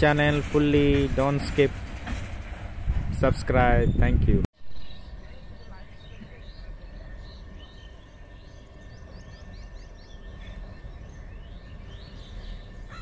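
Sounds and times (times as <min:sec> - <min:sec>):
distant train rumble: 0:00.0 - 0:13.0
birds chirping: 0:03.8 - 0:13.0.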